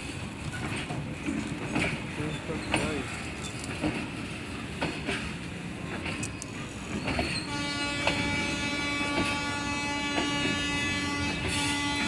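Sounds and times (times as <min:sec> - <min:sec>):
freight train wagons rolling: 0:00.0 - 0:12.0
wheels clacking over rail joints: 0:00.0 - 0:12.0
long train horn: 0:07.4 - 0:12.0.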